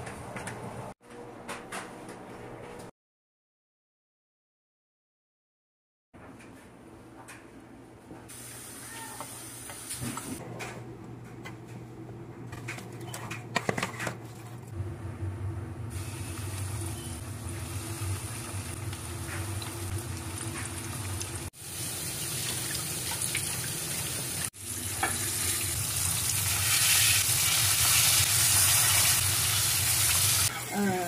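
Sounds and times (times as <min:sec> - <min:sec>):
oil sizzling in a skillet: 0:15.9 - 0:31.0.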